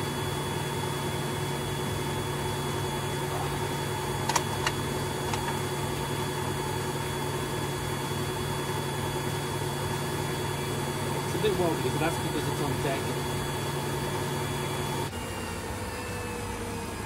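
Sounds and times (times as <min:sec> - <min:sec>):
washing machine spinning: 0:00.0 - 0:17.0
sharp clicks: 0:04.2 - 0:05.6.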